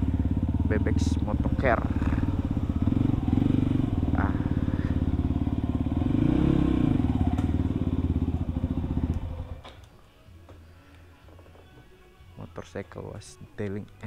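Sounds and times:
motorcycle engine idling: 0.0 - 9.8.

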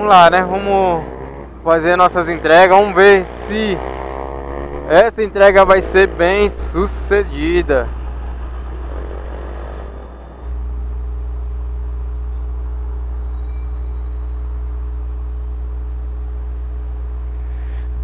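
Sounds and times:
motorcycle engine: 0.0 - 17.9
wind rumble: 4.3 - 14.8.

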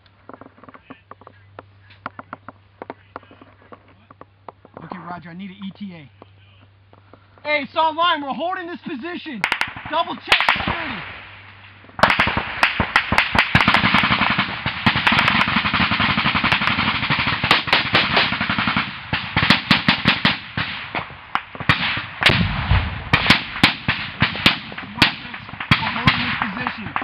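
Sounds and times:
automatic gunfire: 9.4 - 11.4, 12.0 - 27.0
single gunshots: 9.4 - 27.0.

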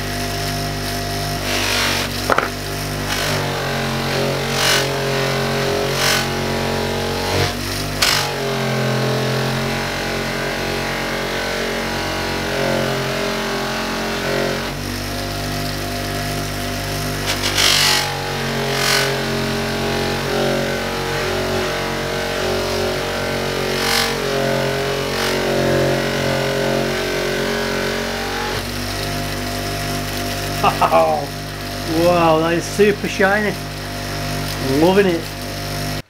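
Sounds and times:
electric bench polisher running: 0.0 - 36.0
metal rasping against buffing wheel: 16.9 - 19.4.

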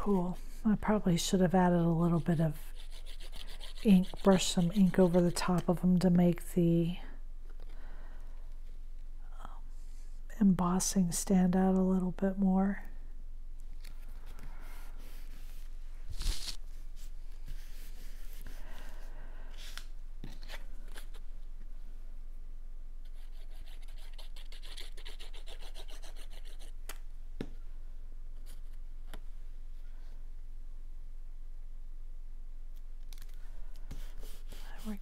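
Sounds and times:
rapid scratchy rasp: 2.1 - 5.6, 23.2 - 26.7
paper rubbing and scraping: 2.2 - 5.2, 14.8 - 18.6, 33.9 - 35.0.

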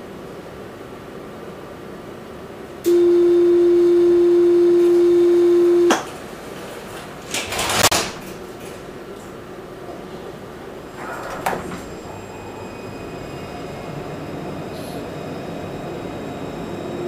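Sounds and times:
tram electronic warning tone: 2.8 - 6.1, 10.9 - 17.0.

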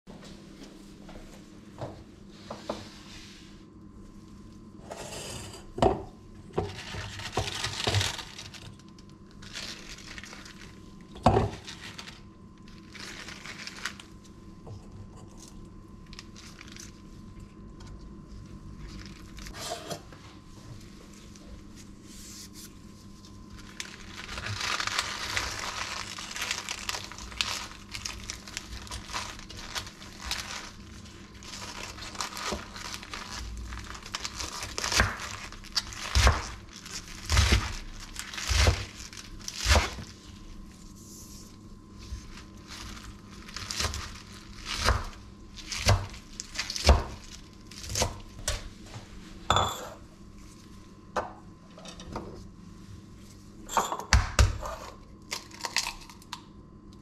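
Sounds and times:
spinach leaves crinkling: 6.7 - 14.6, 15.3 - 19.6, 21.1 - 48.4, 55.3 - 56.3.

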